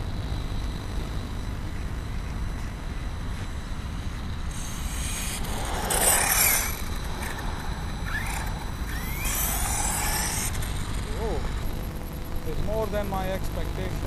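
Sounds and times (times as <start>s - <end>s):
rc car motor whine: 0.0s - 14.0s
steady low rumble: 0.0s - 14.0s
tyre hiss on asphalt: 2.6s - 11.4s.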